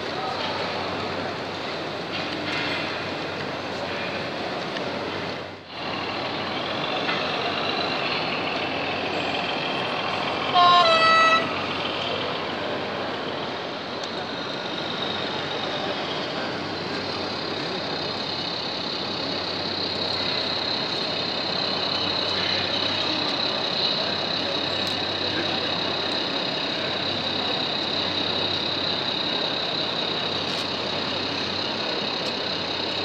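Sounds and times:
two-note model train horn: 10.5s - 11.6s.

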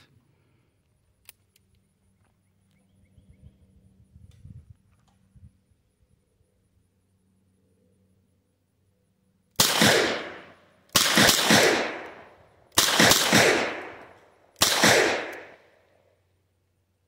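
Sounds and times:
revolver gunshots: 9.6s - 15.8s.

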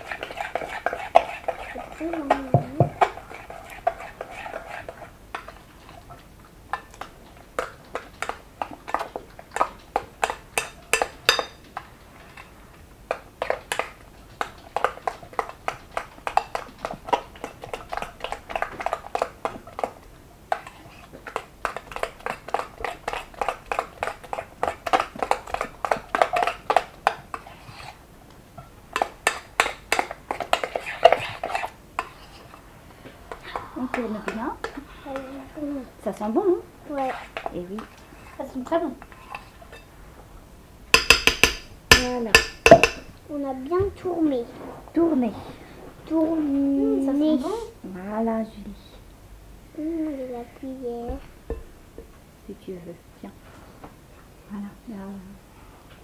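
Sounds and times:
whisk clattering against glass bowl: 40.9s - 43.1s.

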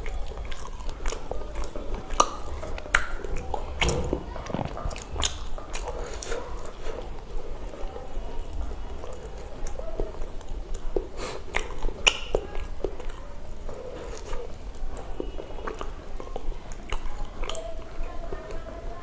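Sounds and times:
wet mouth clicks and smacks: 0.0s - 6.5s, 9.6s - 13.2s
person chewing food: 0.0s - 18.6s.

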